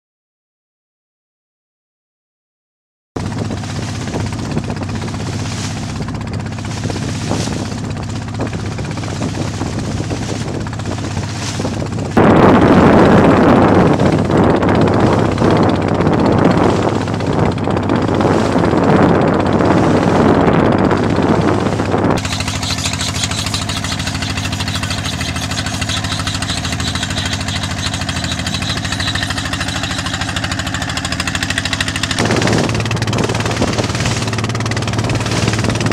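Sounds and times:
boat engine droning: 3.2s - 35.9s.

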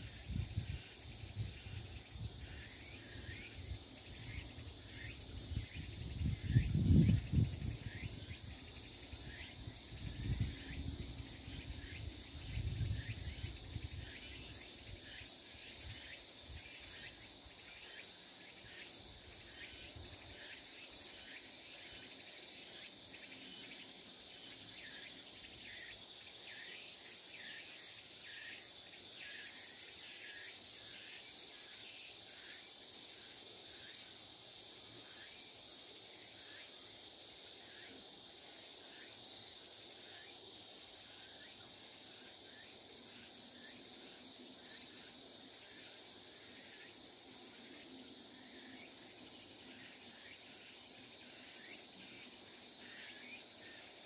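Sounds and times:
insects calling shrilly: 0.0s - 54.0s
wind gusts on microphone: 5.6s - 8.1s, 9.9s - 11.2s.

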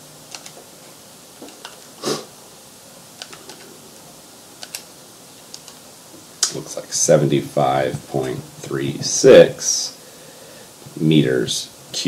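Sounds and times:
calculator buttons clicking: 0.3s - 0.6s, 3.2s - 3.7s, 4.6s - 4.9s, 5.5s - 5.8s.

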